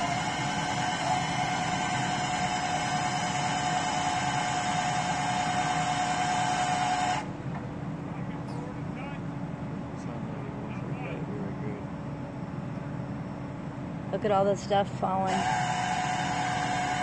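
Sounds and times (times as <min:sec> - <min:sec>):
chainsaw high whine: 0:00.0 - 0:07.3, 0:15.3 - 0:17.0
truck engine rumble: 0:00.0 - 0:17.0.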